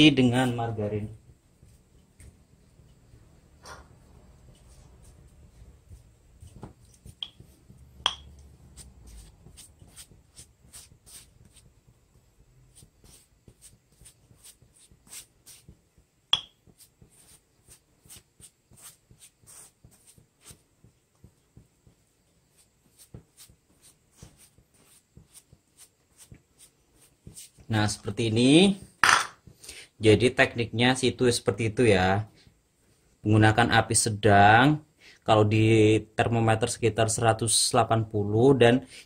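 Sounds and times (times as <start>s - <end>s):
pastry brush strokes: 0.1s - 3.4s, 4.0s - 28.8s.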